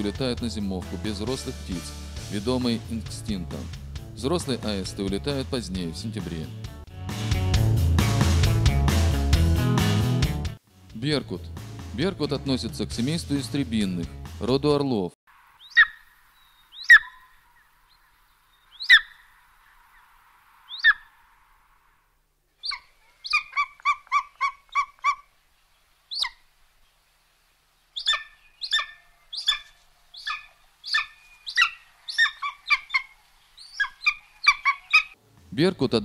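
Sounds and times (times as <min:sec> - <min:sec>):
eagle calling: 0:00.0 - 0:01.8, 0:15.6 - 0:22.0, 0:22.6 - 0:27.0, 0:27.7 - 0:35.2.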